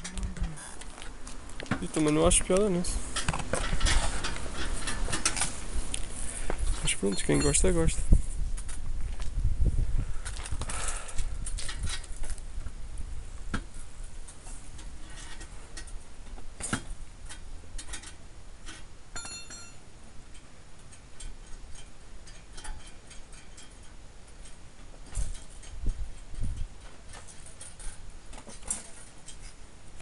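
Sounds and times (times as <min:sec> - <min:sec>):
metallic clinks of exhaust handled: 0:06.7 - 0:08.0, 0:17.3 - 0:29.5.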